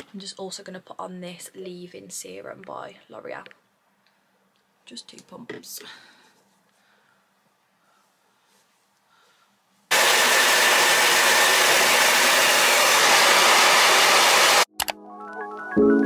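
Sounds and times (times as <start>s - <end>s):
hair dryer blowing: 9.9s - 14.7s.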